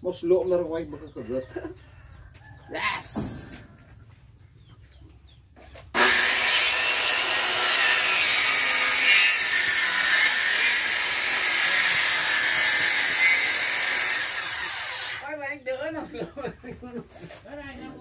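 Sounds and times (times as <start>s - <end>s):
electric planer shaving wood: 6.0s - 15.2s.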